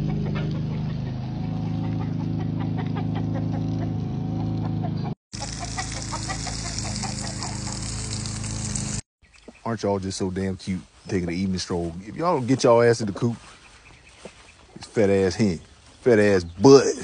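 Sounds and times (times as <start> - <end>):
chickens clucking: 0.0 - 8.0, 13.1 - 14.9
garden hose spray hissing: 5.4 - 9.1.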